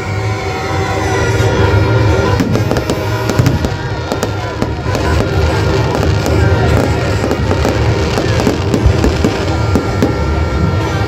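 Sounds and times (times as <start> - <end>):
fireworks bangs and crackles: 0.0 - 11.0.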